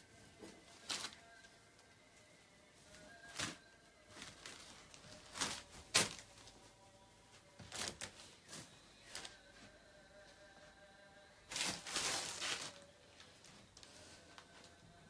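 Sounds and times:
fabric and plastic rustling: 0:00.0 - 0:10.8, 0:11.4 - 0:15.0.

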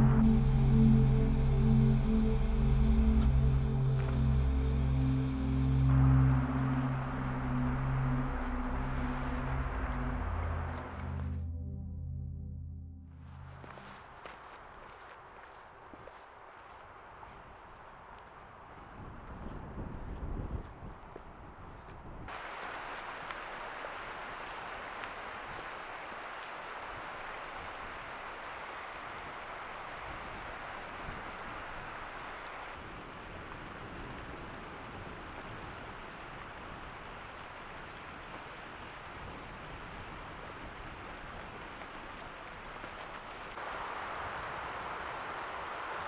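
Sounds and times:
stream flowing over stones: 0:22.3 - 0:46.0.

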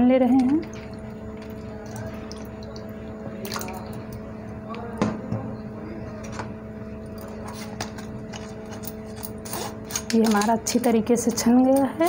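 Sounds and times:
steady hum: 0:00.0 - 0:12.0
liquid dripping into bowl: 0:00.3 - 0:04.8
wet pulp squished through sieve: 0:00.7 - 0:04.2.

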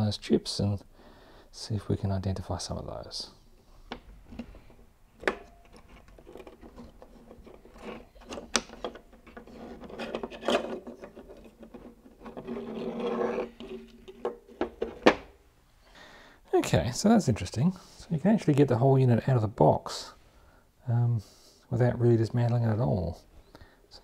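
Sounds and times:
scraping and rubbing: 0:05.6 - 0:15.1.

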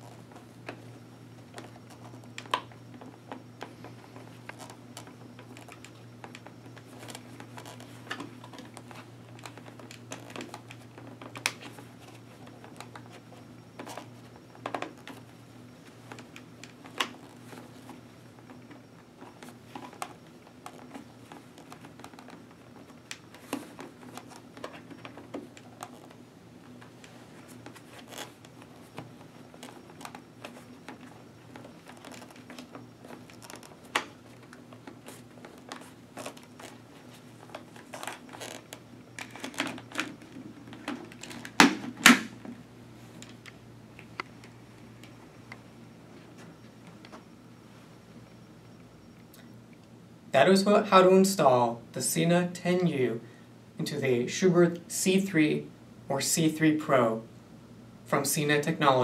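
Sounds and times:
light clicks and scratches: 0:00.0 - 0:41.6
fabric rustling: 0:00.0 - 0:48.2
steady low hum: 0:00.0 - 0:59.0.

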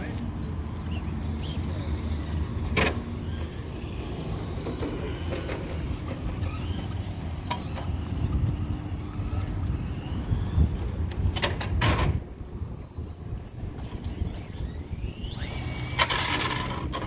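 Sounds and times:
electric motor whining: 0:00.7 - 0:11.3, 0:13.3 - 0:17.0.

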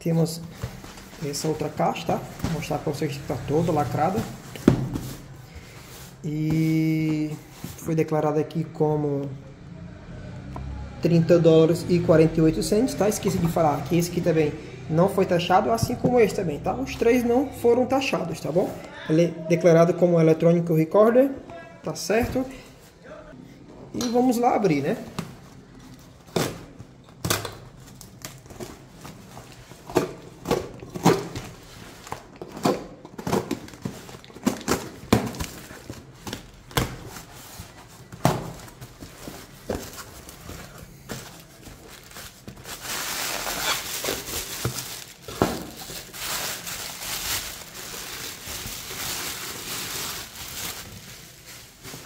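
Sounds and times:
plastic wrap crinkling: 0:00.4 - 0:07.8, 0:24.6 - 0:52.0.

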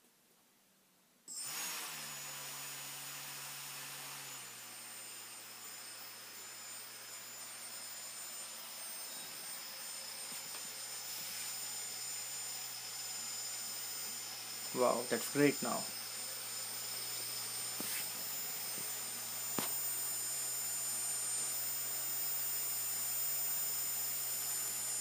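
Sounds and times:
electric motor whirring and whining: 0:01.3 - 0:25.0.

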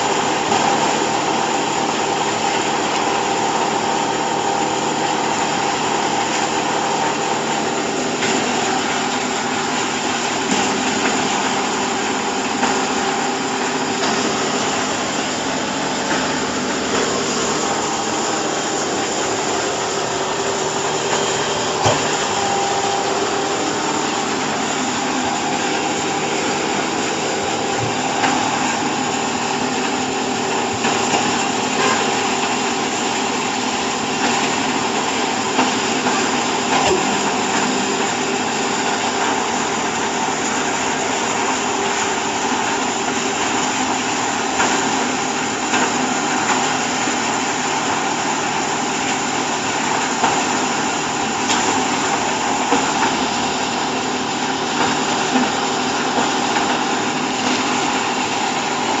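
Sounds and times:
baler motor humming: 0:12.2 - 0:33.0.

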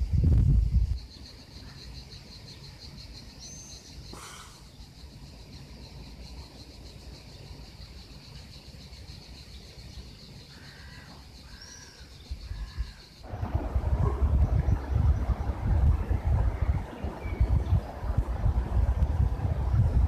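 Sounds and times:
insects trilling: 0:00.0 - 0:20.0
short bird calls: 0:03.5 - 0:04.9, 0:10.4 - 0:13.2
low rumble: 0:13.2 - 0:20.0.

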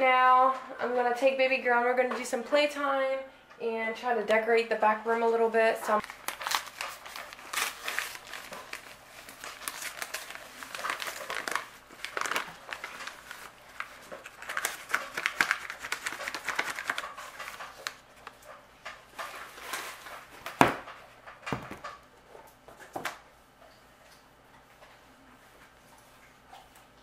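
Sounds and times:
bag crinkling and rustling: 0:06.0 - 0:20.7.

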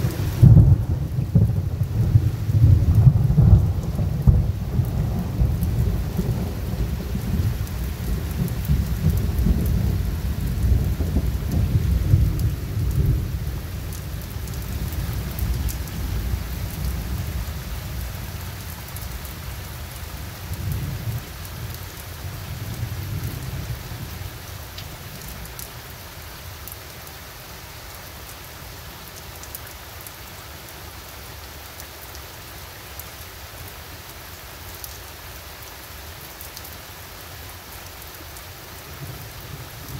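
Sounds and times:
rolling thunder rumble: 0:00.0 - 0:18.1
steady rain falling: 0:00.0 - 0:39.9.

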